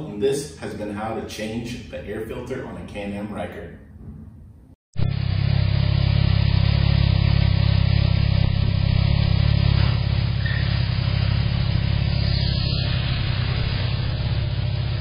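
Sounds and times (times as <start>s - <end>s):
motorcycle engine running at low revs: 5.0s - 15.0s.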